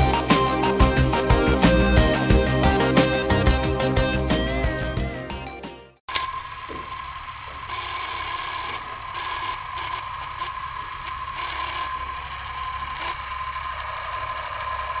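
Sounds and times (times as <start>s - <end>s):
film projector whirring: 6.1s - 15.0s.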